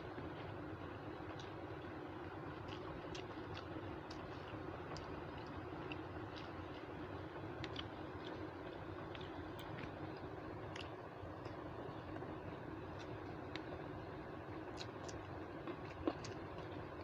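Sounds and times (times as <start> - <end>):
steady background hum: 0.0 - 17.0
chewing: 2.5 - 7.0, 7.6 - 12.2, 14.7 - 16.8.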